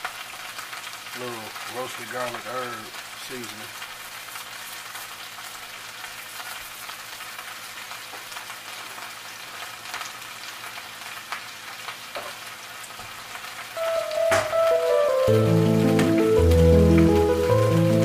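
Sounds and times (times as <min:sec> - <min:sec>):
vegetables sizzling in frying pans: 0:00.0 - 0:18.0
music: 0:13.8 - 0:18.0.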